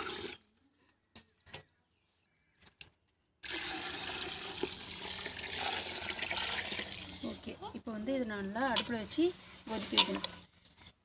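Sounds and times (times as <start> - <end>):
water splashing into a pot: 3.4 - 7.1.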